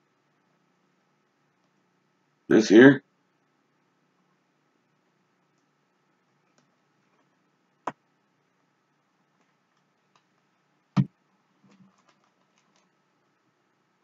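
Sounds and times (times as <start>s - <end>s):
light clicks and rustles: 11.6s - 13.0s.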